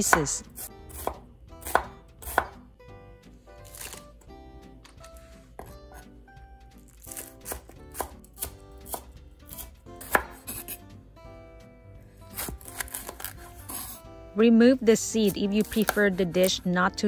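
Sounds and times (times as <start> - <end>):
knife chopping on wooden board: 0.0 - 2.7, 5.6 - 6.0, 6.9 - 10.8, 12.3 - 14.0, 15.3 - 16.6.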